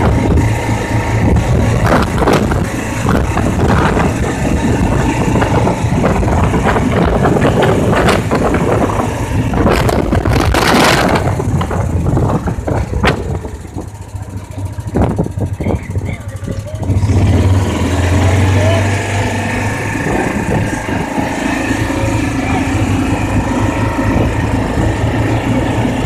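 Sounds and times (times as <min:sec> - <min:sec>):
rush of noise: 0:00.0 - 0:26.0
utility vehicle engine running: 0:00.0 - 0:26.0
rattles and knocks: 0:01.2 - 0:16.8.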